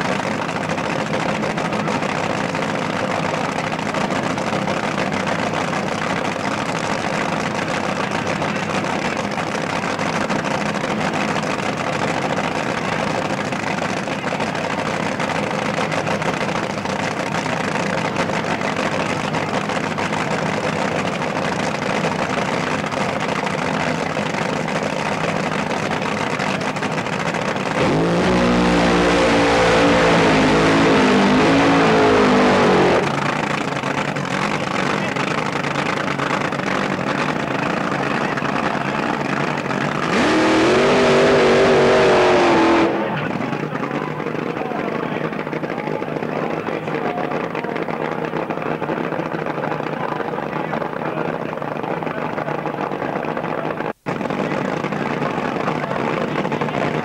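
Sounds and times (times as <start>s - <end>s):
drag racing engines idling: 0.0s - 57.0s
engine revving loudly: 27.7s - 33.4s, 40.0s - 43.6s.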